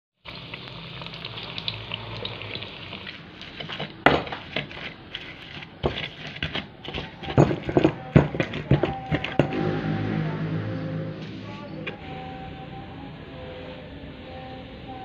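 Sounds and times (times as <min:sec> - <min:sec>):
food sizzling in hot oil: 0:00.2 - 0:03.7
pestle grinding in clay mortar: 0:03.1 - 0:09.6.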